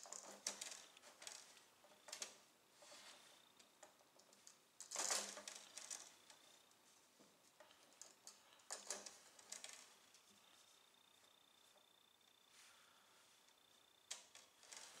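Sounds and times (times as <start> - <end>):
scratchy rustle: 0.0 - 3.4
cord rustling: 0.0 - 15.0.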